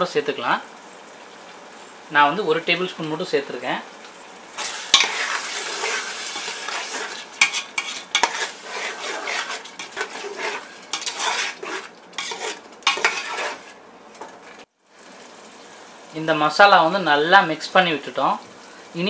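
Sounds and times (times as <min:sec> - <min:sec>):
oil sizzling: 0:00.0 - 0:19.0
metal ladle scraping a pot: 0:04.6 - 0:14.6.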